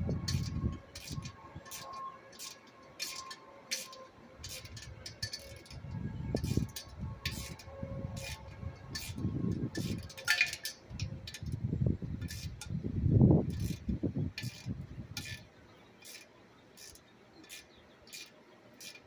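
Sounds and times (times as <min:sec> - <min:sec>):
metal tool clicks and clinks: 0:00.3 - 0:09.2, 0:09.8 - 0:11.5.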